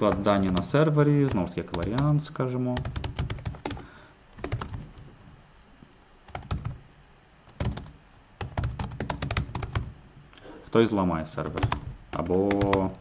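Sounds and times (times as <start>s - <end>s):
typing on computer keyboard: 0.0s - 2.2s, 2.8s - 5.0s, 6.3s - 6.8s, 7.4s - 9.9s, 11.4s - 13.0s.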